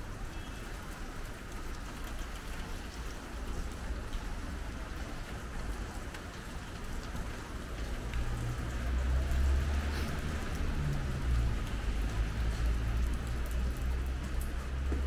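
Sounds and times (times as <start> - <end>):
rain falling on street: 0.0 - 15.0.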